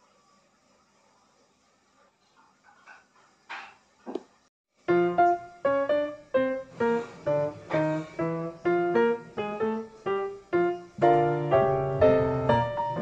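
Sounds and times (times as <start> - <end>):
piano music: 4.9 - 13.0.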